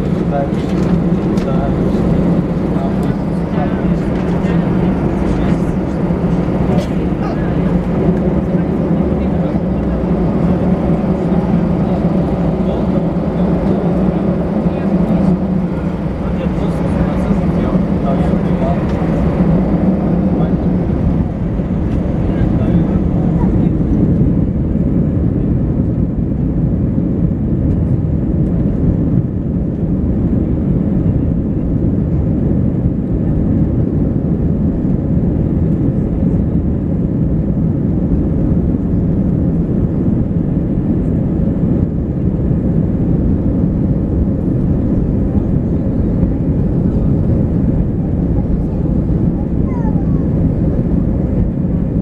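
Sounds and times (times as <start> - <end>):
wheels rolling on taxiway: 0.0 - 26.1
jet engines idling: 0.0 - 52.0.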